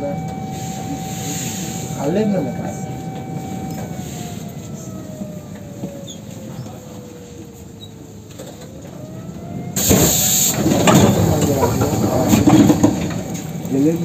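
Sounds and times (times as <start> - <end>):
loud hiss: 9.8 - 12.4.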